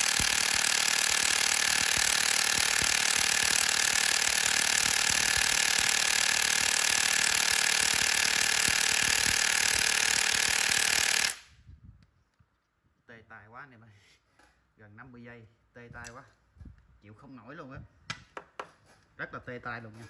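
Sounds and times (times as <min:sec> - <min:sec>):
impact wrench metallic rattle: 0:00.0 - 0:11.5.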